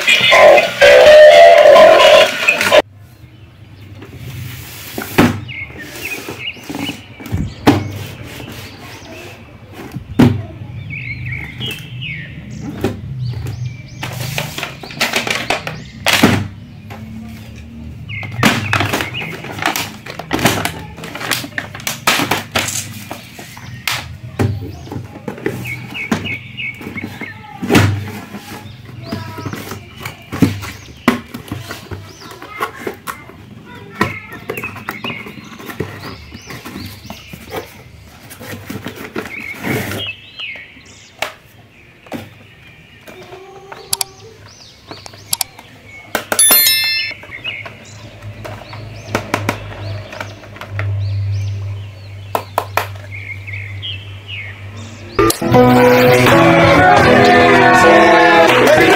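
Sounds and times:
boxes thunking and knocking: 5.0s - 5.7s, 6.3s - 8.6s, 18.0s - 33.1s
music: 55.2s - 58.9s.

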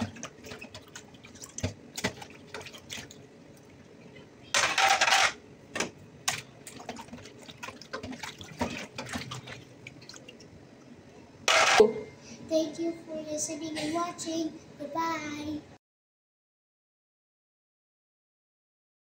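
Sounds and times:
water splashing: 0.0s - 3.2s, 6.3s - 10.4s
water sloshing: 0.0s - 3.8s, 6.3s - 10.5s
dishes clinking against basin: 11.5s - 12.1s.

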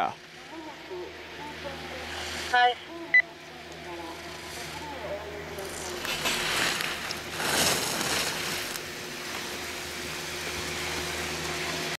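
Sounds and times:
faint steady hum: 0.0s - 12.0s
skis scraping on snow: 2.0s - 2.6s, 4.0s - 11.9s.

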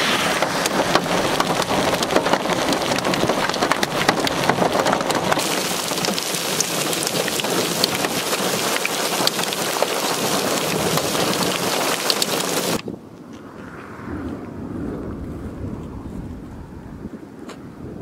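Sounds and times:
hailstones ticking: 0.0s - 12.8s
heavy rain hissing: 0.0s - 12.8s.

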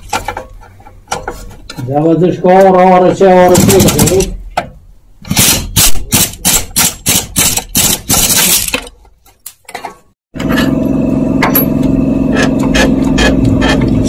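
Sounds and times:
steady mechanical hum: 9.8s - 14.0s.

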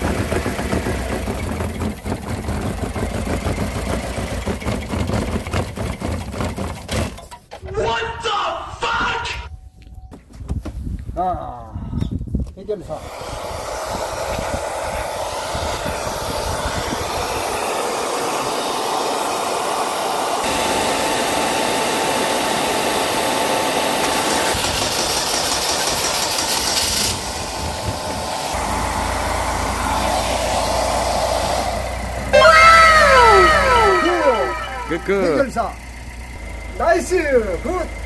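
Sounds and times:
hair dryer blowing: 12.8s - 35.4s
falling whistling tones: 32.3s - 35.5s.

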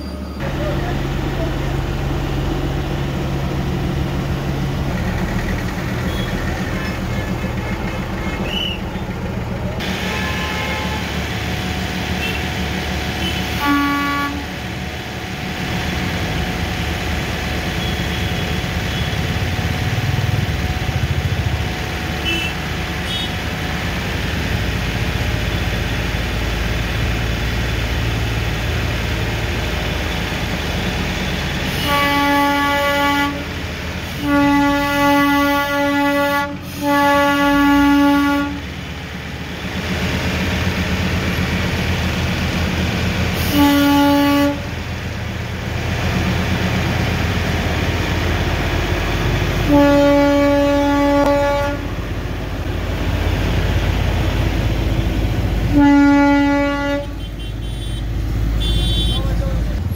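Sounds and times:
street traffic engines humming: 0.0s - 59.9s
short horn toots: 10.1s - 11.1s, 55.7s - 59.4s.

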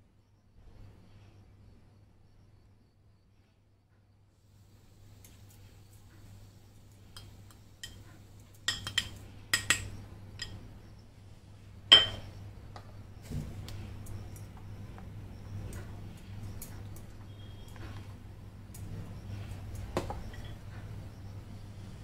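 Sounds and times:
dishes clinking against metal bowl: 7.1s - 10.6s, 11.9s - 12.4s, 20.0s - 20.6s.

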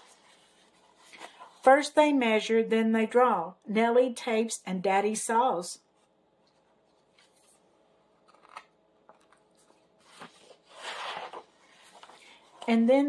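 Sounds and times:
page turning: 6.5s - 7.6s, 8.2s - 12.7s.

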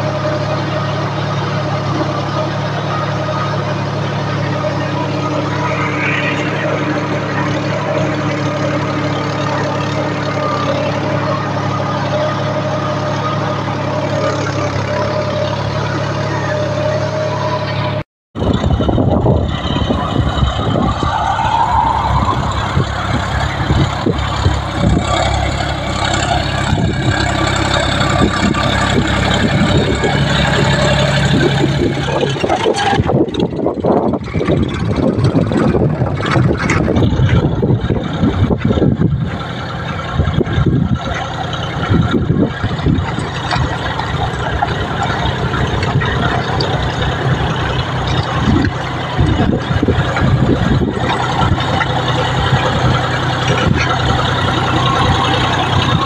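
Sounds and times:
tractor diesel engine running: 0.0s - 56.0s
wind buffeting microphone: 18.4s - 56.0s.

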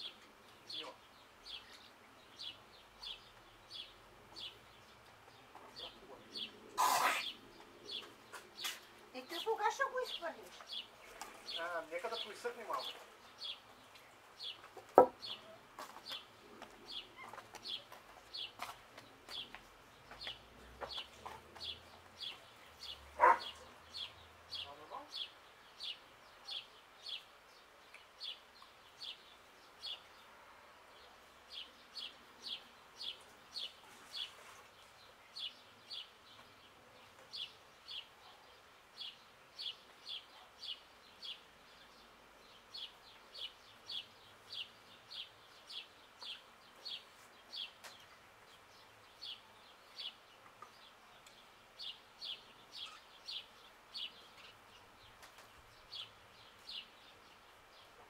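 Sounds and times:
faint outdoor background hiss: 0.0s - 58.0s
songbird chirping: 0.0s - 58.0s.

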